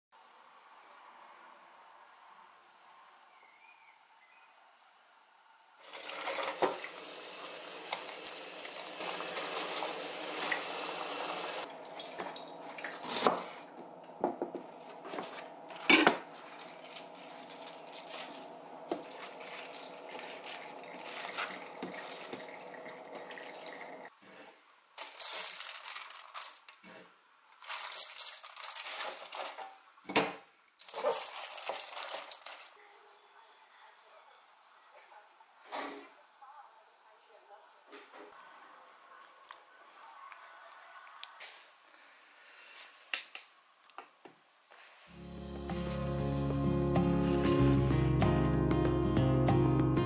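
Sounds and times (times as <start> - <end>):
tap running: 7.8 - 24.1
metal bowl and colander clattering: 15.0 - 23.9, 24.9 - 26.8, 27.6 - 32.8
water splashing: 16.3 - 24.1.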